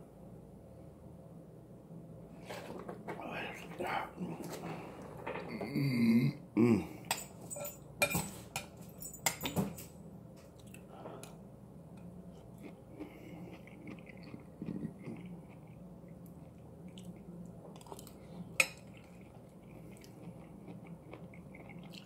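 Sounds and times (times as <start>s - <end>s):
soft chewing: 10.4s - 11.4s, 12.0s - 22.0s.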